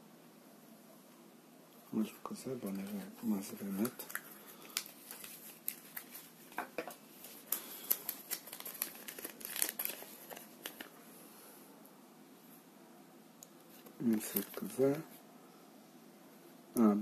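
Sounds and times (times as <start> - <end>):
paper crinkling: 2.6 - 11.0, 13.7 - 15.0.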